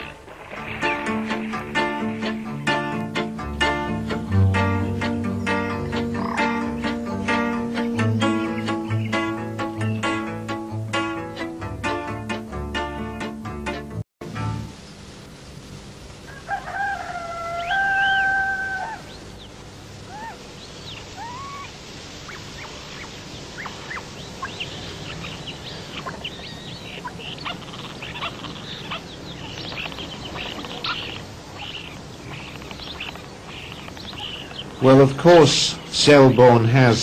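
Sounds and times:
small birds chirping: 0:00.0 - 0:10.5, 0:17.5 - 0:37.0
rooster crowing: 0:16.2 - 0:19.3.

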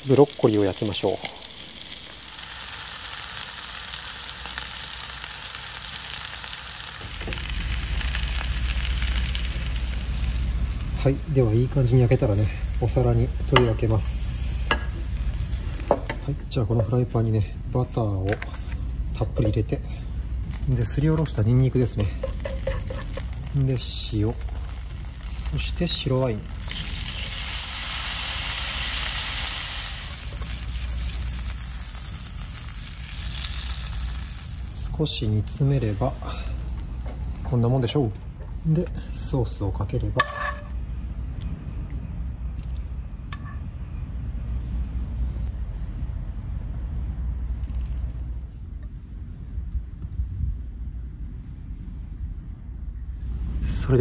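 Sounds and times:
fish frying in a pan: 0:00.0 - 0:16.2, 0:22.0 - 0:34.8
low rumble: 0:07.0 - 0:27.4.

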